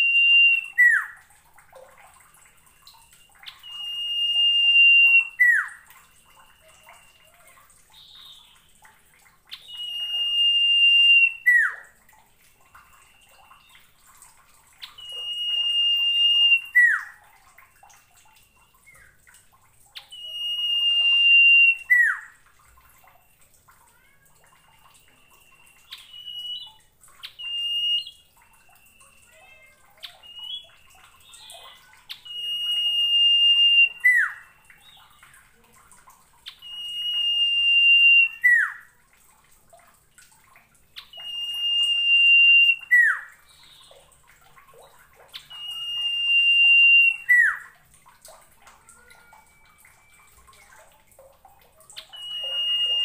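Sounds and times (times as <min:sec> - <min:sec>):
bird singing high whistles: 0:00.0 - 0:01.2, 0:02.7 - 0:07.3, 0:09.5 - 0:11.9, 0:12.7 - 0:13.9, 0:14.8 - 0:17.2, 0:20.0 - 0:22.4, 0:24.9 - 0:35.2, 0:36.5 - 0:38.9, 0:41.0 - 0:44.0, 0:45.3 - 0:47.7, 0:52.0 - 0:53.0.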